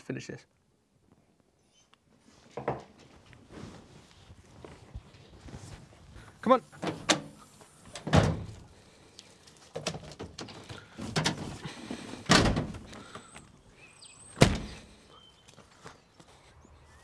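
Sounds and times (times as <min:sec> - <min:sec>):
tailgate thuds and knocks: 0:08.0 - 0:08.6, 0:12.2 - 0:12.9, 0:14.4 - 0:14.8
truck door slamming: 0:08.0 - 0:08.6, 0:12.2 - 0:12.9, 0:14.4 - 0:14.9.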